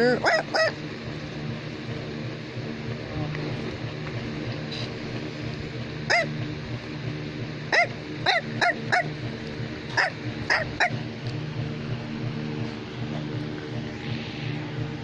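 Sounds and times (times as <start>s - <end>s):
small dog yapping: 0.0s - 0.8s, 6.1s - 6.4s, 7.7s - 9.2s, 9.9s - 11.0s
steady low hum: 0.0s - 15.0s.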